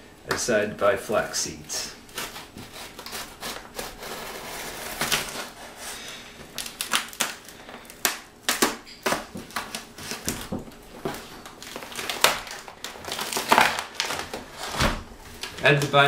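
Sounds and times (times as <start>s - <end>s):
fingernails scratching cardboard tape: 2.1s - 5.8s.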